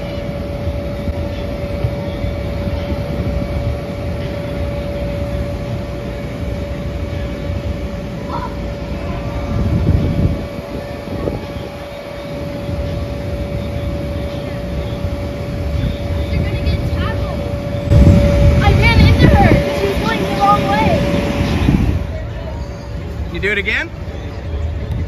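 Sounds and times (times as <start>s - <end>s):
electric air blower droning: 0.0s - 22.4s.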